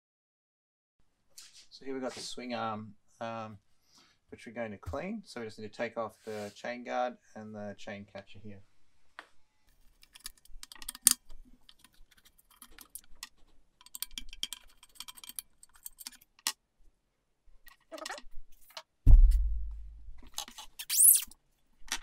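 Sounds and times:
screwdriver clicking and scraping: 0:09.8 - 0:16.6, 0:20.2 - 0:22.0
loud dull thump: 0:19.1 - 0:20.2.

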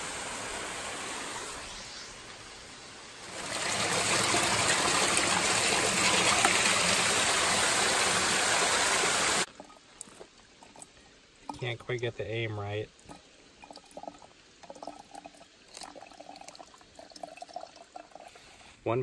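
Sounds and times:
small waterfall splashing: 0:00.0 - 0:12.0
water pouring into pouch: 0:13.0 - 0:18.4.

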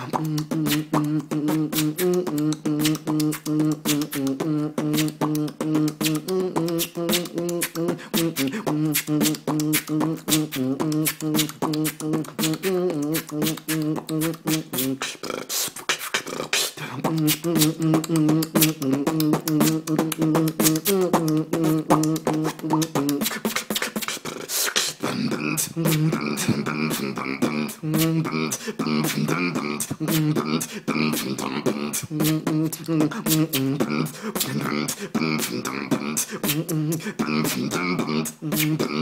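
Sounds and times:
hummed melody: 0:00.0 - 0:15.0, 0:17.0 - 0:23.4
beatboxing mouth percussion: 0:00.0 - 0:39.0.

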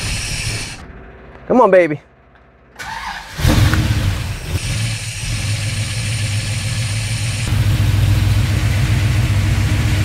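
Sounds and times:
car engine starting and idling: 0:02.4 - 0:10.0.

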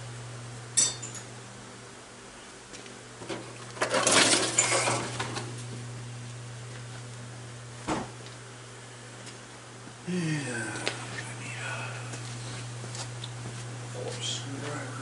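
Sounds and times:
steady low hum: 0:00.0 - 0:15.0
box and items rattling on metal: 0:03.8 - 0:05.1.

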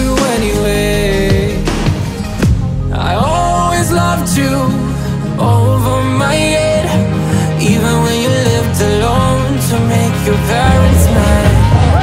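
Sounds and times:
song with bass: 0:00.0 - 0:12.0.

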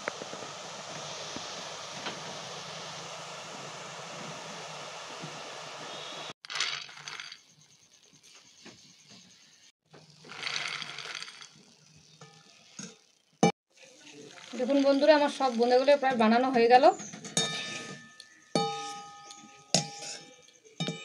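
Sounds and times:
frying in hot oil: 0:00.0 - 0:21.0
small hard balls landing on metal: 0:06.4 - 0:07.4, 0:10.2 - 0:11.6.

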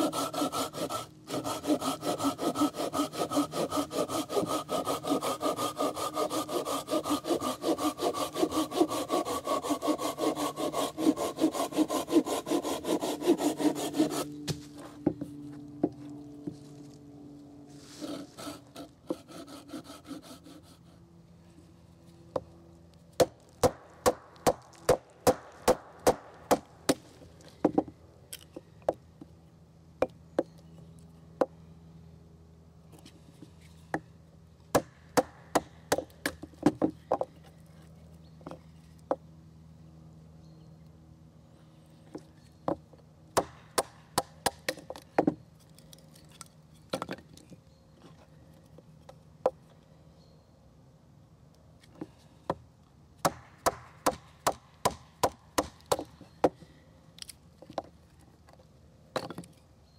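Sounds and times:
knife scraping wood: 0:00.0 - 0:15.0, 0:17.8 - 0:21.0.

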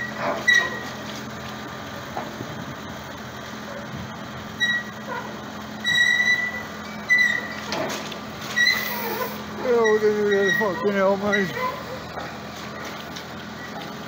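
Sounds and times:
steel cradle squealing: 0:00.0 - 0:01.0, 0:04.5 - 0:13.0
diesel engine running: 0:00.0 - 0:14.0.

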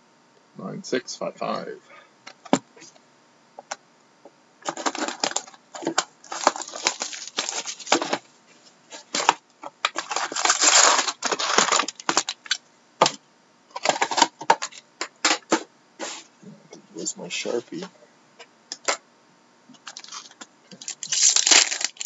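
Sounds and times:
foil wrappers crinkling and rustling: 0:04.6 - 0:15.6, 0:19.7 - 0:22.0.

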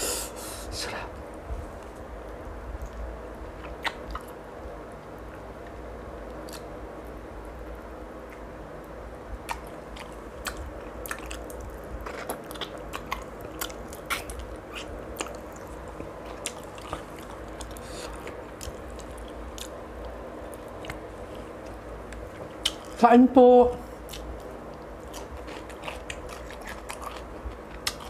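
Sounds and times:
chewing and lip-smacking: 0:02.8 - 0:04.4, 0:05.3 - 0:06.7, 0:09.4 - 0:23.0, 0:24.0 - 0:28.0.

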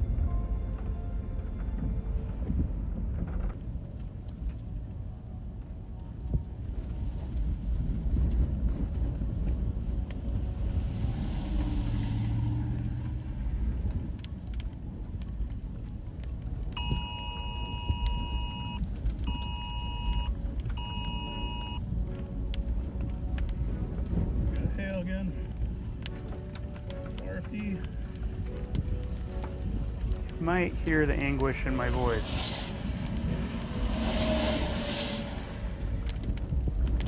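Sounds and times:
vehicle rumble: 0:00.0 - 0:37.0
wind: 0:00.0 - 0:37.0
emergency alert beeps: 0:16.8 - 0:21.8.

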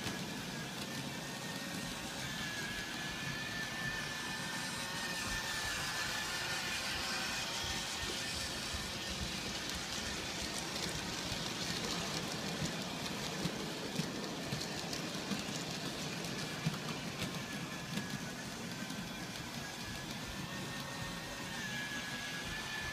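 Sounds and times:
model trains rattling rumble: 0:05.1 - 0:20.7.

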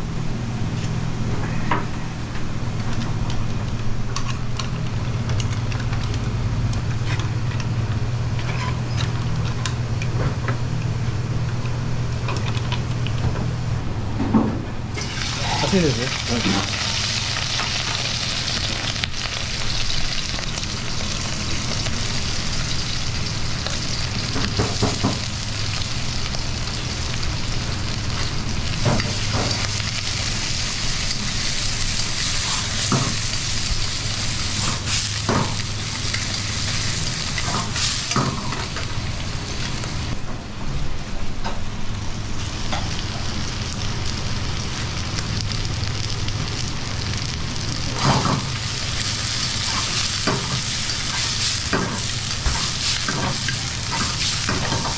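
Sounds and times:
steady low hum: 0:00.0 - 0:54.9
food sizzling in a wok: 0:15.0 - 0:40.2, 0:42.4 - 0:54.9.

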